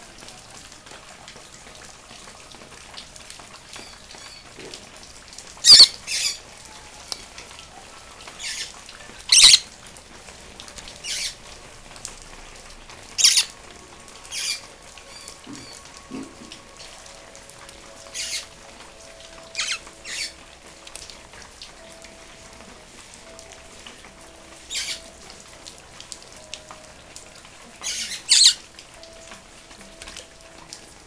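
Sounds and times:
parrot splashing in water: 2.1s - 11.5s, 12.6s - 21.8s, 27.0s - 30.6s.

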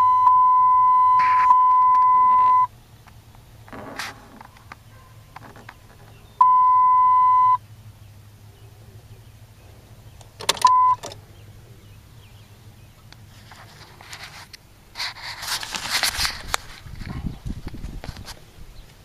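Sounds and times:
electronic warning beep: 0.0s - 2.7s, 6.4s - 7.6s, 10.6s - 11.0s
low steady hum: 0.0s - 17.9s.

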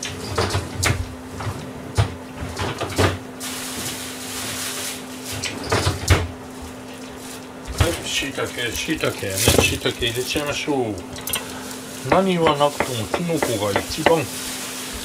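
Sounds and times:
steady low hum: 6.1s - 15.0s.

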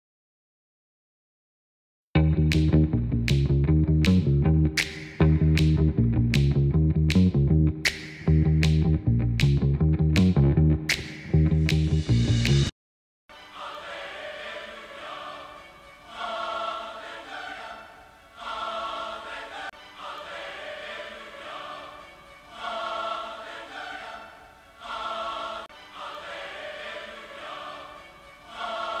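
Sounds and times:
choir singing: 13.3s - 29.0s.

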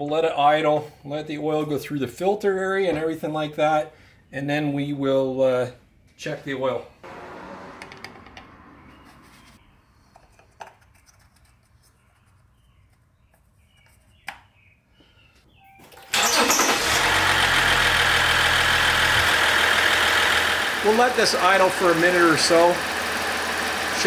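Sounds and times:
diesel engine starting and idling: 7.0s - 9.2s, 16.0s - 24.0s.

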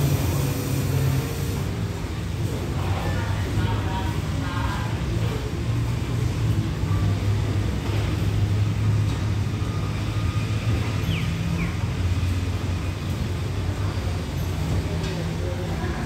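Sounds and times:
diesel locomotive idling hum: 0.0s - 2.7s.

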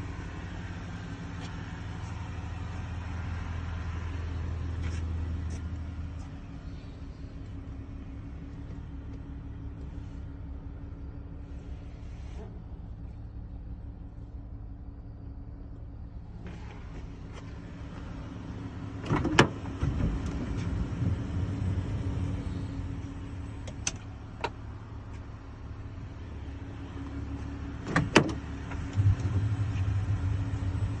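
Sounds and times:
van engine idling: 0.0s - 31.0s.

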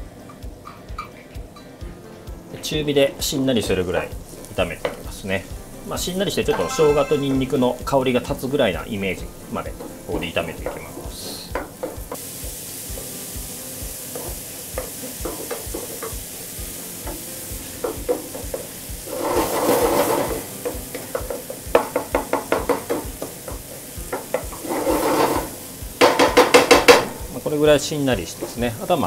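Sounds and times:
food sizzling in oil: 0.0s - 29.0s
wooden spatula stirring and scraping: 19.0s - 20.4s, 24.3s - 25.6s.

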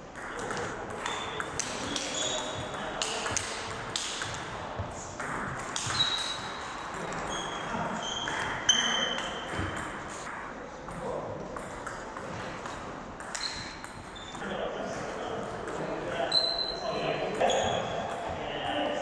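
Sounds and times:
shoes squeaking on wooden floor: 1.0s - 2.7s, 13.4s - 14.4s, 17.4s - 18.0s.

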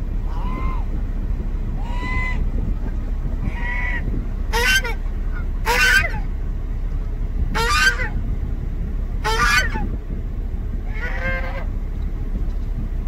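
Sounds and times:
steady low rumble: 0.0s - 13.0s
geese honking: 0.2s - 1.0s, 1.7s - 2.4s, 3.4s - 6.4s, 7.4s - 8.2s, 9.2s - 9.9s, 10.8s - 11.8s.

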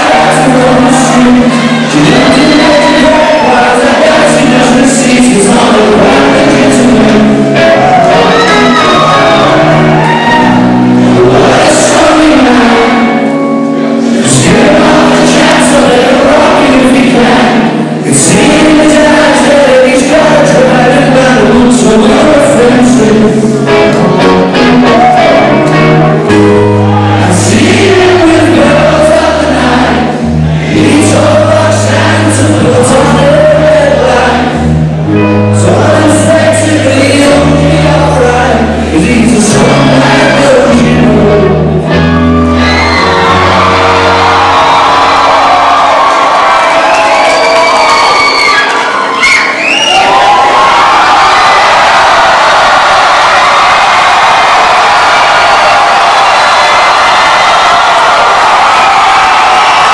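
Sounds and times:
crowd singing along: 0.0s - 47.3s
lead vocal singing: 0.0s - 47.9s
electric guitar: 0.0s - 49.2s
live rock band: 0.0s - 49.6s.

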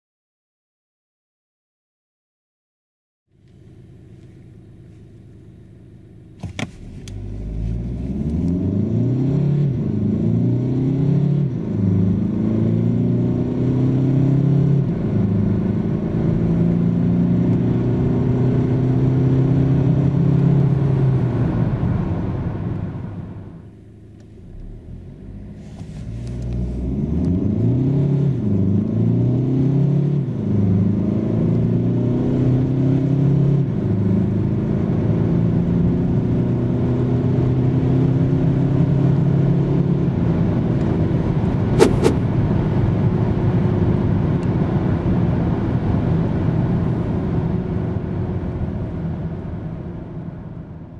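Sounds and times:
car engine accelerating: 3.5s - 50.9s
sharp click: 41.8s - 42.2s.

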